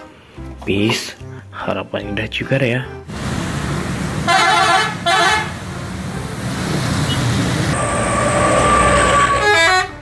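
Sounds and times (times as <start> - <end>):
engine and road traffic: 3.0 - 10.0
bus horn blasts: 4.2 - 5.6, 8.9 - 10.0.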